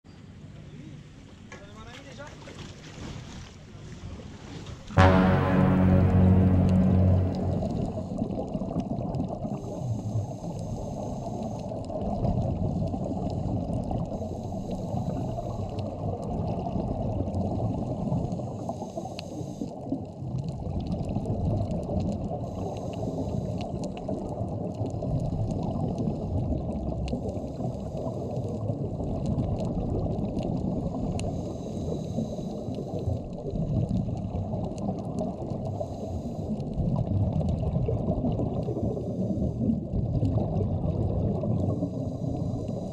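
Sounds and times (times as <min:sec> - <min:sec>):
muffled underwater rush: 0:20.7 - 0:42.9.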